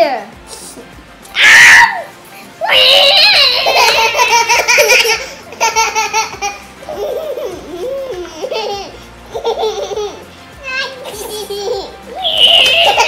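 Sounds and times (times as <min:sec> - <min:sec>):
children laughing: 0:02.6 - 0:13.0
toddler giggling: 0:03.2 - 0:10.2, 0:11.0 - 0:13.0.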